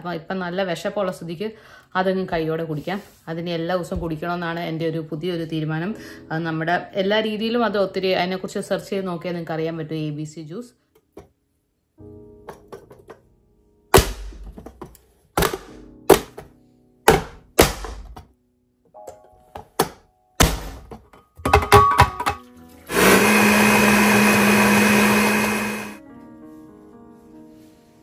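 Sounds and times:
electric blender running: 22.9 - 26.0.

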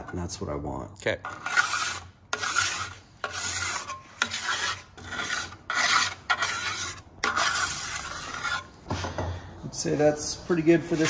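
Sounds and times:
file scraping metal: 1.2 - 8.8, 10.8 - 11.0.

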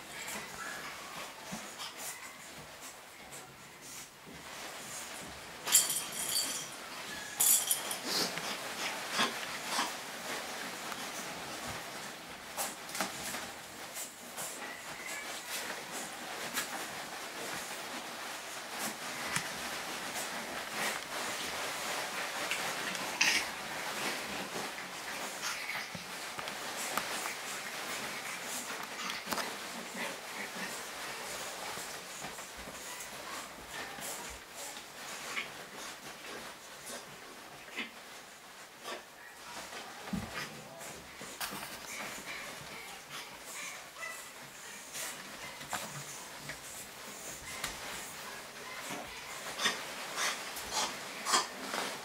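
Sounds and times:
puppies rustling shredded paper: 0.0 - 52.0.

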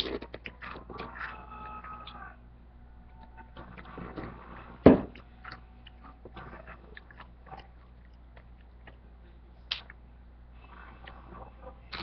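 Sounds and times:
boy chewing food: 0.0 - 2.3, 3.0 - 12.0
thump on table: 4.9 - 5.1.

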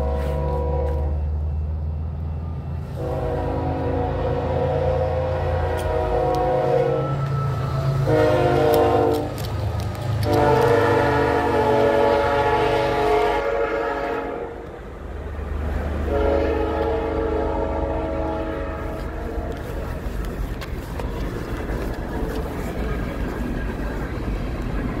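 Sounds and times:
horn blasts: 0.0 - 1.3, 2.9 - 9.4, 10.2 - 14.7, 16.0 - 19.6.

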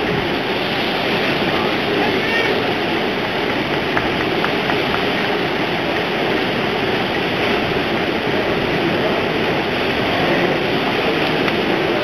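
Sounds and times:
rough sea breaking and churning: 0.0 - 12.0.

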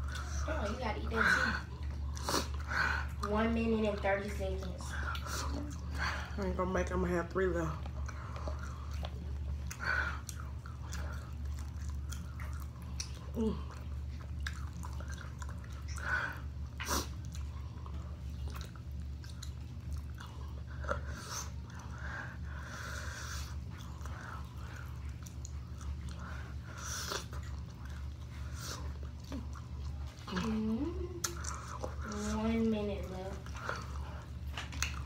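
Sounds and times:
steady low hum: 0.0 - 35.0
person chewing chicken wings: 1.1 - 6.4, 7.8 - 35.0.

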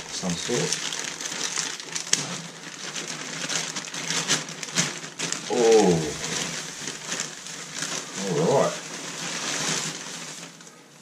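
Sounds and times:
plastic bag crinkling and rustling: 0.0 - 11.0
short voiced sound falling: 5.5 - 6.5.

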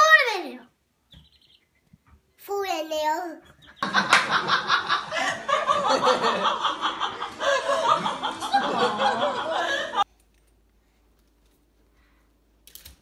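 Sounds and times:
laughter: 3.6 - 10.1.

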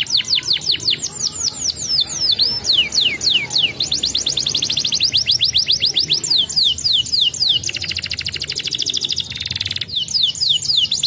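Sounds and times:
canary singing: 0.0 - 11.0.

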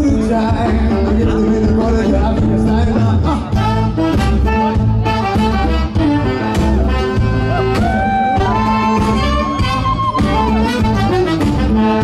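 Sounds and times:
live band playing: 0.0 - 12.0
pulsing bass beat: 0.0 - 12.0.

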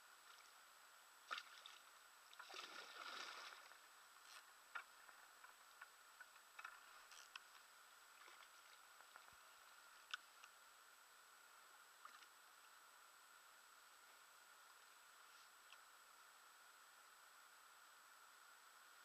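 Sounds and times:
soft swish of water: 0.1 - 7.2, 8.0 - 10.2
faint ticks: 3.6 - 10.6, 11.6 - 12.8, 13.9 - 16.1.

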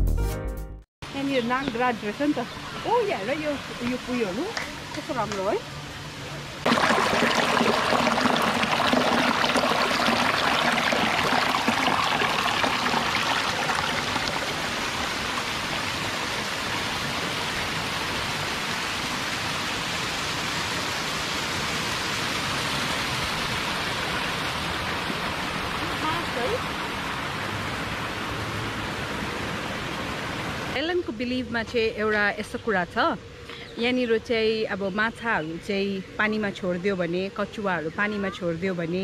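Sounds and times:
waterfall rushing: 6.6 - 30.8.

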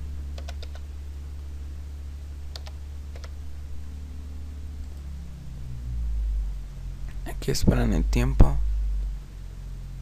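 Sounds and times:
steady low hum: 0.0 - 10.0
computer keyboard keystrokes: 0.4 - 0.8, 2.5 - 3.4.

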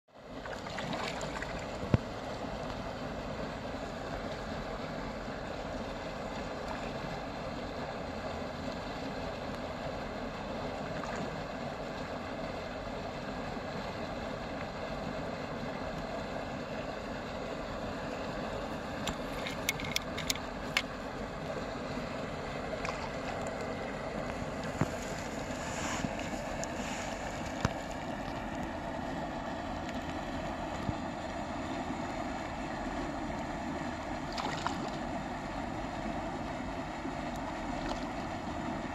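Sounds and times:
fishing rod clicks: 19.0 - 20.9.

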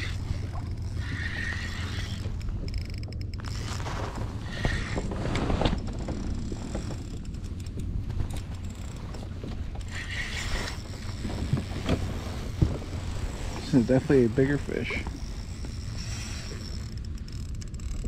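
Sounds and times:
fishing reel clicking: 0.0 - 3.8, 9.8 - 11.3, 13.8 - 18.0
water against kayak hull: 0.0 - 18.0.

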